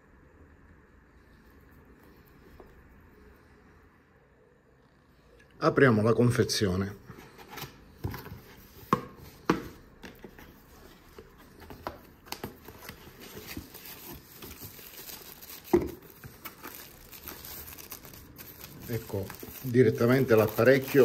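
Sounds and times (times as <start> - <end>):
packaging crinkling and rustling: 10.1 - 21.0.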